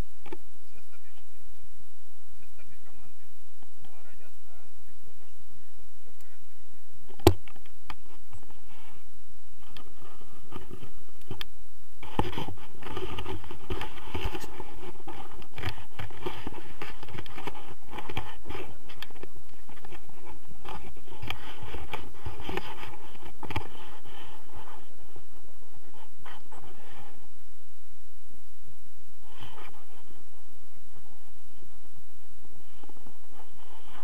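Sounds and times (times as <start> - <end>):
clothing and harness rustling: 12.0 - 27.3.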